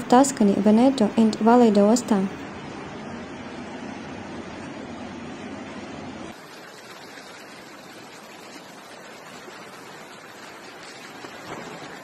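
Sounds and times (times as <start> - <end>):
floodwater rushing: 6.3 - 12.0.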